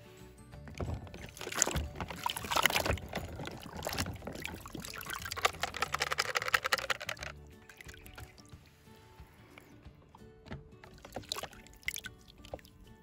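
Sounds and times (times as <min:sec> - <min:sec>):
water sloshing in plastic tub: 0:00.6 - 0:08.6, 0:09.6 - 0:12.8
water running off toy: 0:00.7 - 0:08.5.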